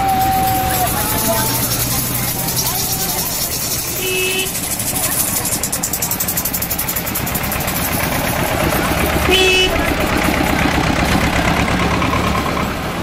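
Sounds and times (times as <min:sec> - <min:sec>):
tractor engine running: 0:00.0 - 0:13.0
horn toot: 0:03.8 - 0:04.8, 0:09.2 - 0:09.9.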